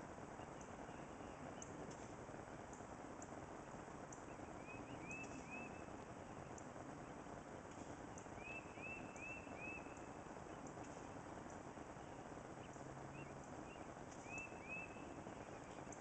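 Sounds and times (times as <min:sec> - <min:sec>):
faint background noise: 0:00.0 - 0:16.0
bird chirping: 0:03.6 - 0:07.3, 0:08.0 - 0:16.0.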